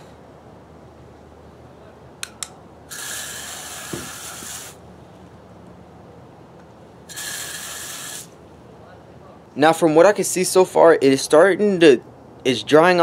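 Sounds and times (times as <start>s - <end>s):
hose nozzle spraying water: 2.9s - 4.8s, 7.1s - 8.3s.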